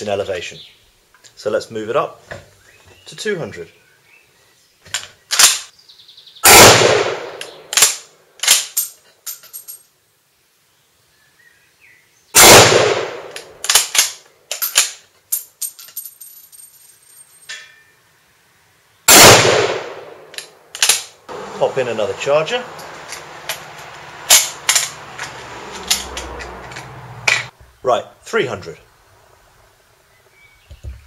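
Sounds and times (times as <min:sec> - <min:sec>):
loud rifle shots: 0:06.4 - 0:08.7, 0:12.4 - 0:14.2, 0:19.1 - 0:21.1.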